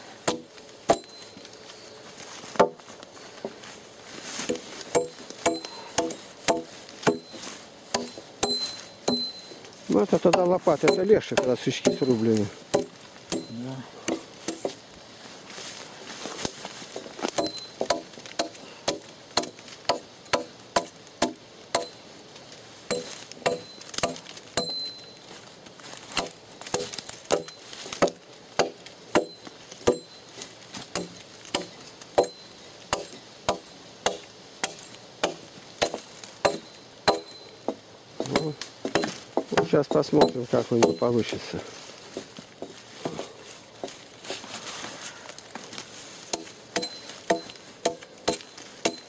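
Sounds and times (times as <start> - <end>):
hand tool chopping a log: 0.2 - 1.2, 2.5 - 2.8, 4.4 - 14.8, 16.4 - 22.0, 22.9 - 24.9, 26.1 - 30.2, 30.8 - 41.1, 46.3 - 49.0.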